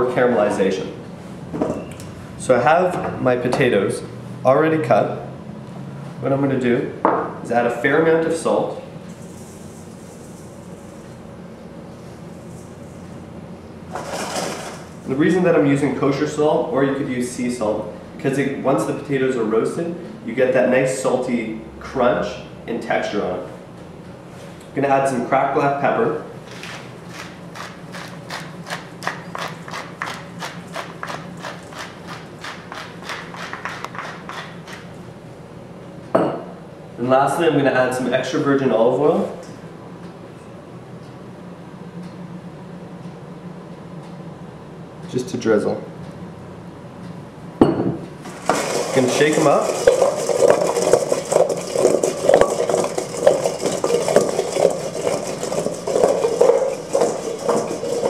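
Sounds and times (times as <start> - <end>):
pepper mill grinding: 27.1 - 34.8, 48.3 - 58.0
potatoes tumbling in metal bowl: 48.3 - 58.0.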